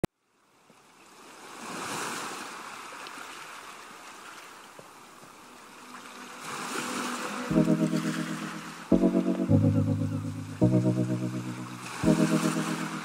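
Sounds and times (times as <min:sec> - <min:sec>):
sea waves washing: 0:06.2 - 0:13.0.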